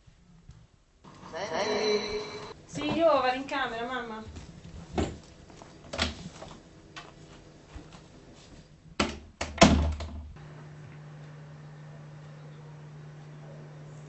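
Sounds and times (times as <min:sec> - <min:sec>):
steady low hum: 0:01.0 - 0:09.0
door closing thud: 0:09.0 - 0:10.3.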